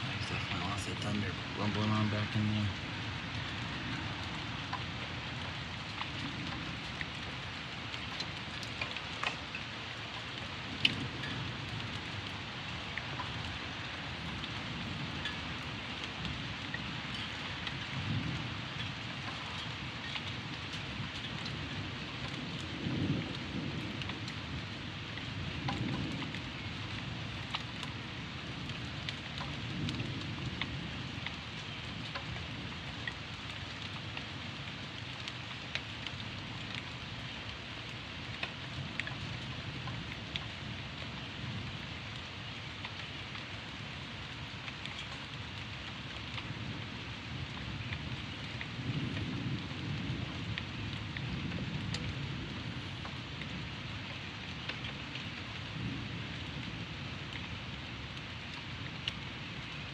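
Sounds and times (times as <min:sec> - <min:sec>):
distant thunder rumbling: 0:00.0 - 0:07.5, 0:10.3 - 0:32.8
raindrops ticking close by: 0:00.0 - 0:59.9
steady rain falling: 0:00.0 - 0:59.9.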